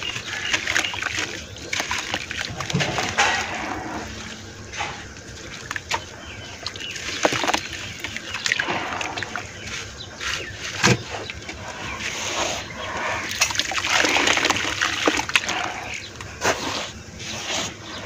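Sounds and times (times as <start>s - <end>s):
water splashing in bucket: 0.0s - 16.6s
hands crumbling wet dirt: 0.0s - 16.7s.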